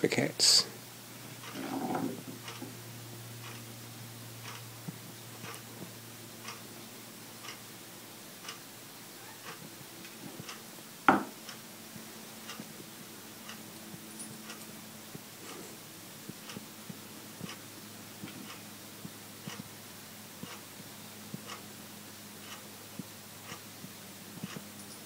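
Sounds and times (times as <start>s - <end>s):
clock ticking: 3.4s - 3.7s, 4.4s - 4.7s, 6.4s - 6.7s, 12.4s - 12.8s, 18.4s - 19.8s, 21.3s - 21.7s, 22.4s - 24.7s.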